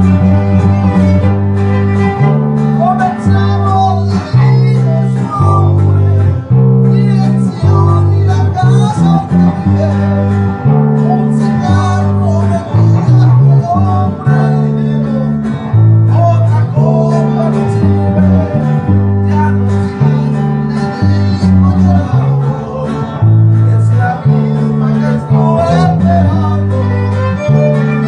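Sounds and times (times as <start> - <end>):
violin melody: 0.0 - 4.7, 25.9 - 28.0
plucked upright bass: 0.0 - 28.0
strummed guitar: 0.0 - 28.0.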